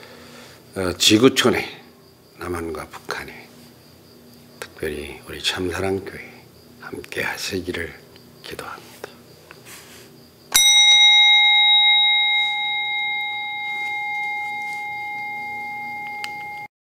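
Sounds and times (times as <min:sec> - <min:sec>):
bell ringing: 0:10.6 - 0:16.7.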